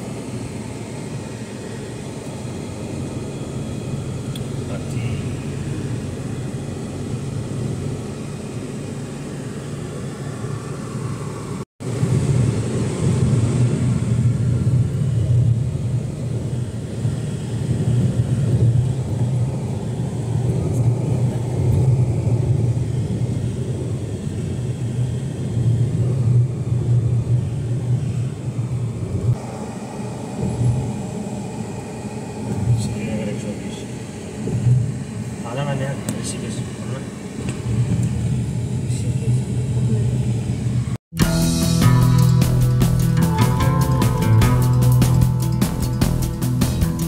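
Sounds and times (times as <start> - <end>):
car road and engine rumble: 0.0 - 47.0.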